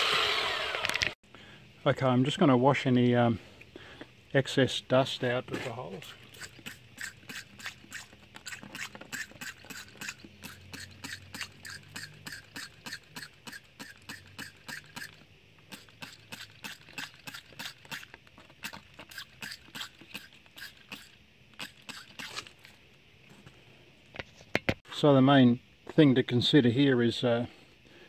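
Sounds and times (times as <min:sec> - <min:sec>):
spray bottle spritzing water: 0:06.0 - 0:22.6.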